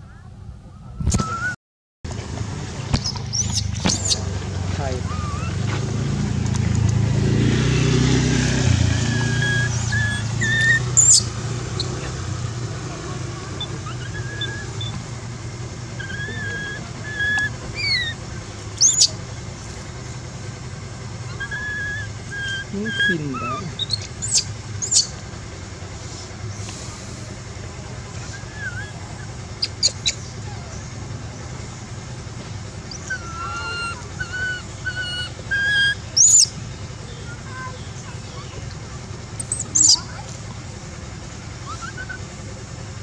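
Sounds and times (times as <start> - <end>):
high-pitched monkey scream: 3.0 - 4.2, 5.0 - 5.6, 9.0 - 12.0, 13.5 - 15.0, 16.0 - 18.2, 18.8 - 19.1, 21.3 - 25.1, 28.3 - 30.8, 32.9 - 36.5, 39.4 - 40.1, 41.6 - 42.2
infant monkey squealing: 3.0 - 4.2, 5.0 - 5.6, 9.0 - 12.0, 13.5 - 15.0, 16.0 - 18.2, 18.8 - 19.2, 21.3 - 25.2, 28.2 - 30.9, 32.9 - 36.6, 39.4 - 40.2, 41.6 - 42.3.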